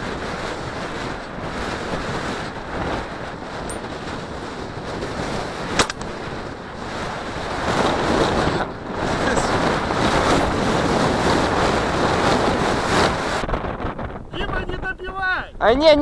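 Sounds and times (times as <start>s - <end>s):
wind buffeting microphone: 0.0s - 16.0s
sharp click: 5.8s - 6.1s.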